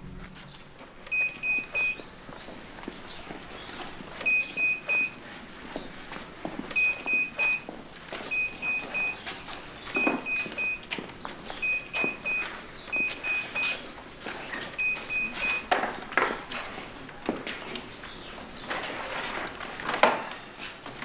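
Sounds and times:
card reader beeping: 1.0s - 2.1s, 4.1s - 5.2s, 6.7s - 13.8s, 14.6s - 15.8s.

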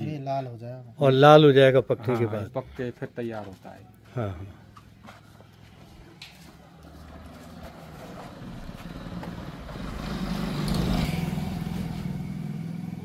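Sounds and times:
vehicle driving past: 6.4s - 13.0s.

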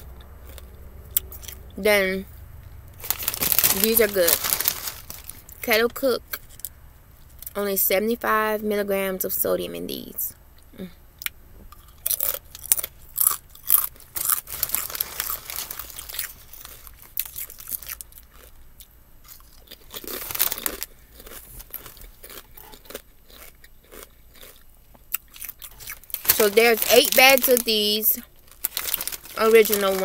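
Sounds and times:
potato chips crunching: 0.1s - 1.7s, 3.0s - 5.8s, 11.2s - 30.0s.

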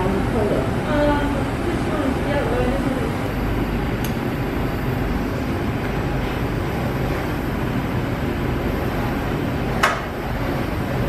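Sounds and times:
gas torch burning: 0.0s - 11.0s.

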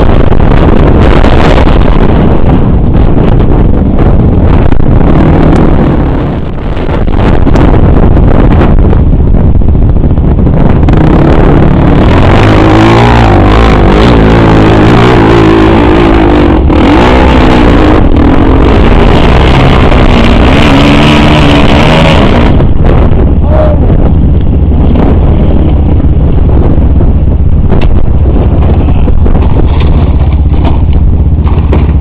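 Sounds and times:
loud low rumble: 0.0s - 32.0s
atv engine revving hard: 10.7s - 24.0s.

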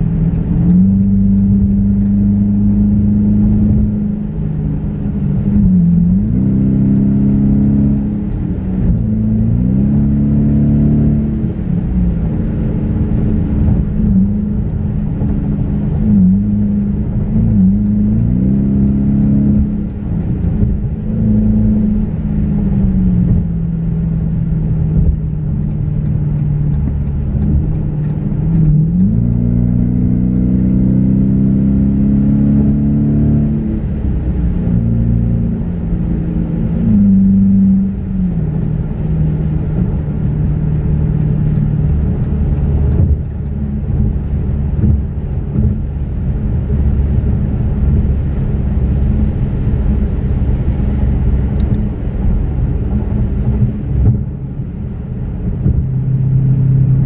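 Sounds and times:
car engine from inside cabin: 0.0s - 57.0s.

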